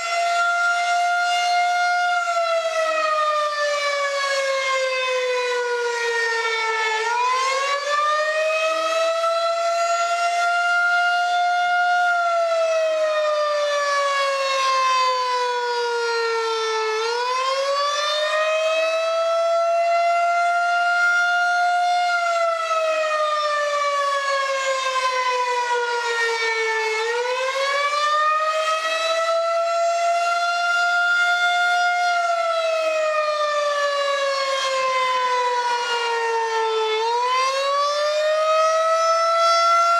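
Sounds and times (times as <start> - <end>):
tornado warning siren wailing: 0.0 - 39.9.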